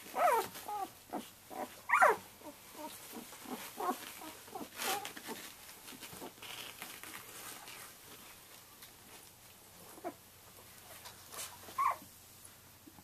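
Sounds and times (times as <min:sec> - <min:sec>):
puppies squeaking and whimpering: 0:00.0 - 0:05.5, 0:11.7 - 0:12.0
bedding rustling: 0:00.0 - 0:12.6.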